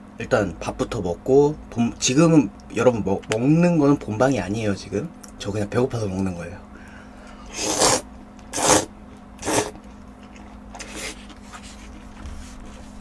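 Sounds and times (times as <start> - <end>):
person slurping noodles: 7.5 - 9.8, 10.8 - 11.3.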